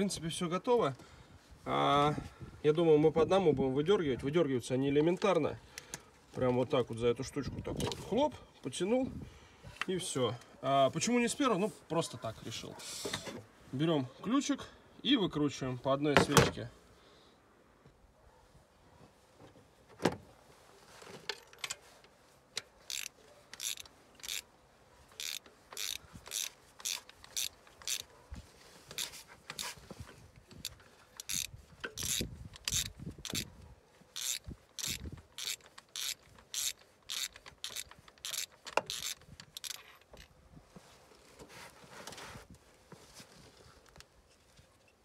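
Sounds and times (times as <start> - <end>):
ratchet wrench clicking: 22.6 - 24.5, 25.2 - 28.1, 30.6 - 33.5, 34.2 - 40.3.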